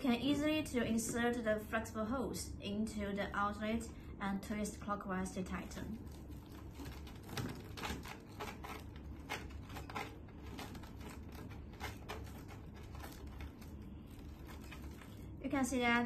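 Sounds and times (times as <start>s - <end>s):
plastic hose clicking and scraping: 6.2s - 15.2s.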